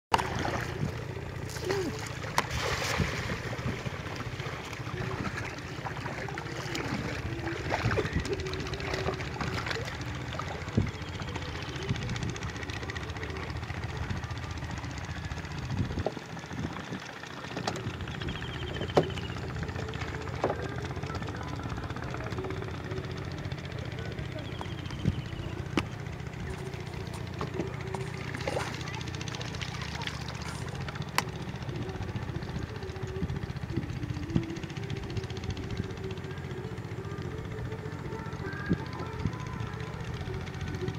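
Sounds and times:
engine running: 0.1 - 40.9
faint wavering hum: 0.1 - 40.9
pulsing mechanical drone: 0.1 - 40.9.

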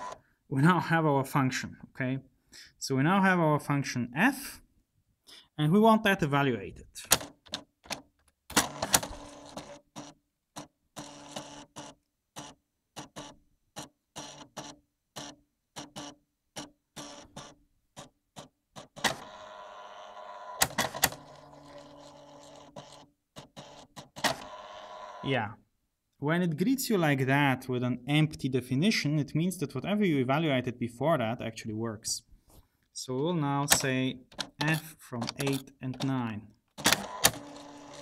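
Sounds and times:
typewriter printing: 7.1 - 25.2, 36.8 - 38.0.

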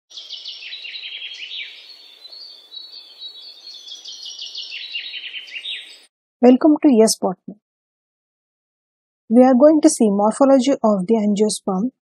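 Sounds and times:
small birds chirping: 0.1 - 6.1.

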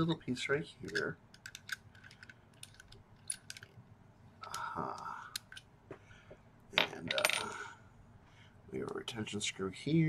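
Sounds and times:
threads turning with small clicks: 0.8 - 3.8, 4.4 - 5.7.

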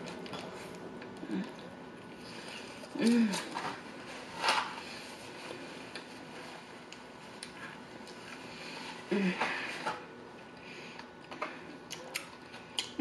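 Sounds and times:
person humming mm: 9.1 - 9.6
person chewing: 10.9 - 13.0.

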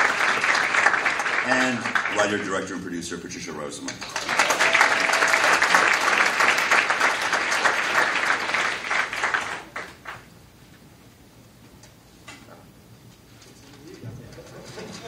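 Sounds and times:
audience clapping: 0.0 - 2.8, 3.8 - 10.3.

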